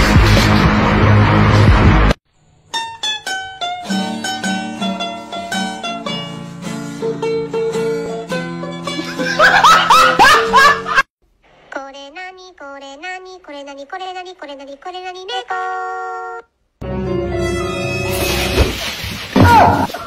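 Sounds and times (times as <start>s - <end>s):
plucked-string melody: 2.7s - 9.3s.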